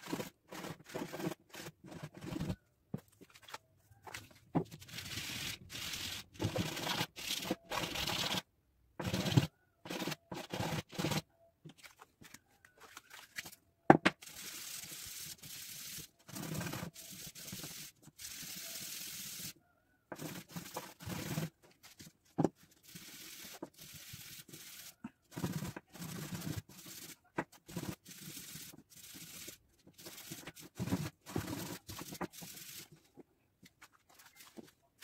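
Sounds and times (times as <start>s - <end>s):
hand sanding rasping scrape: 22.7s - 32.9s.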